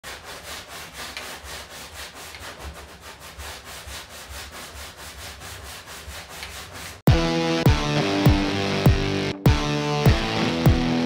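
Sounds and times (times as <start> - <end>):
hand sanding strokes: 0.0 - 7.1.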